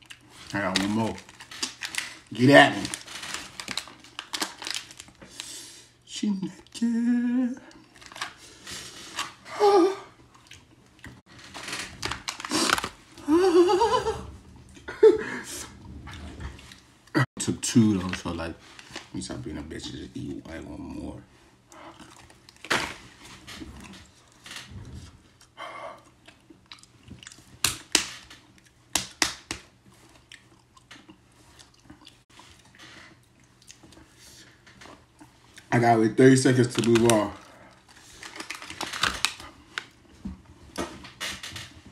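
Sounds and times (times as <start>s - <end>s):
person chewing crunchy peanut: 10.3s - 13.2s, 21.7s - 22.8s, 25.4s - 28.8s, 29.9s - 34.1s.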